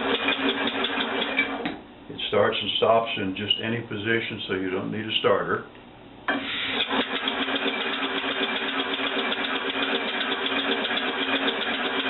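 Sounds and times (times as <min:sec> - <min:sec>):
compressed-air engine puffing: 0:06.3 - 0:08.5.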